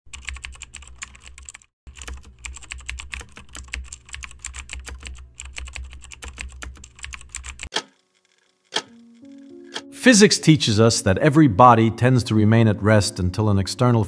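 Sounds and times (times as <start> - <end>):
computer keyboard keystrokes clicking: 0.1 - 7.9.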